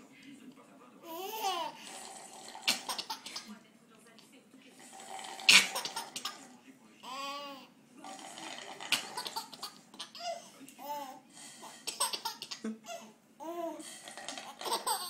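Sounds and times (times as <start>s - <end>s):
baby laughing: 1.0s - 1.8s, 2.7s - 3.5s, 5.5s - 7.6s, 8.9s - 11.2s, 11.8s - 13.8s, 14.4s - 15.0s
bubbling through a straw in water: 1.9s - 3.0s, 4.8s - 6.0s, 8.1s - 9.4s, 13.9s - 14.9s.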